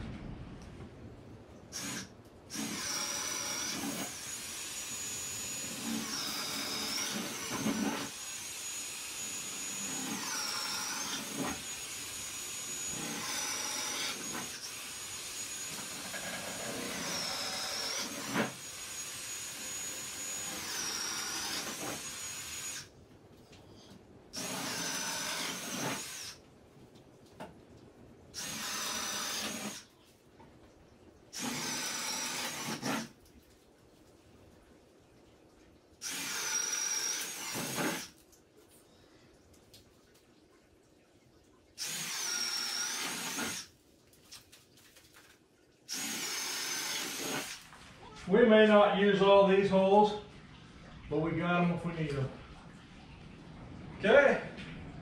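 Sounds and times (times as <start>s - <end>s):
drill boring through wood: 1.7s - 22.9s, 24.4s - 26.4s, 28.4s - 29.9s, 31.4s - 33.1s, 36.0s - 38.1s, 41.8s - 43.7s, 45.9s - 47.6s.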